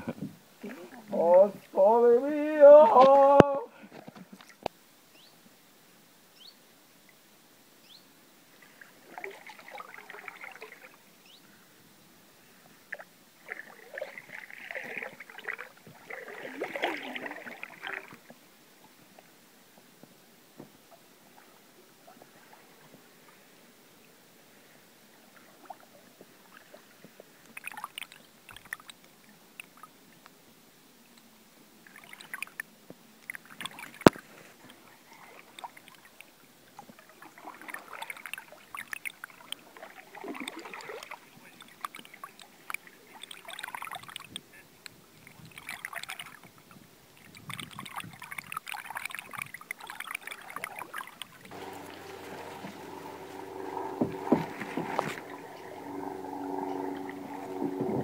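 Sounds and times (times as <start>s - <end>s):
paddle strokes splashing water: 8.5s - 11.2s, 12.5s - 20.1s, 25.1s - 29.0s, 31.8s - 58.0s
steady droning tone: 51.4s - 58.0s.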